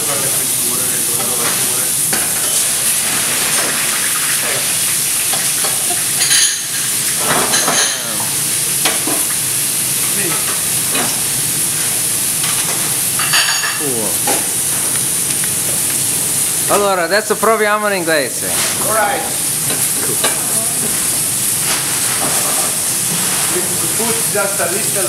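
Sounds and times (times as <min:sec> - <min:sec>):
meat sizzling in a frying pan: 0:00.0 - 0:25.0.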